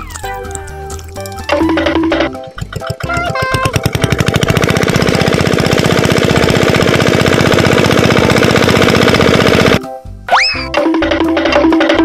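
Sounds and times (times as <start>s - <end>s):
rapid mechanical hammering: 1.5s - 9.8s.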